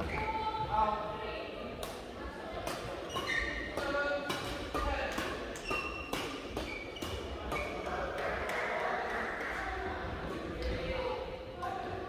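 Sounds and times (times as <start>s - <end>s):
racket hitting shuttlecock: 1.8s - 9.5s
shoes squeaking on court: 3.0s - 3.8s, 5.5s - 7.9s.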